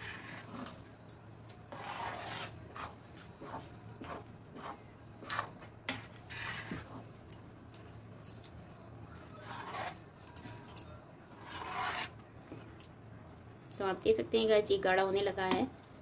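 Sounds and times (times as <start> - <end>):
utensil scraping batter in pan: 0.0 - 0.9, 1.7 - 7.3, 9.2 - 10.5, 11.3 - 12.6.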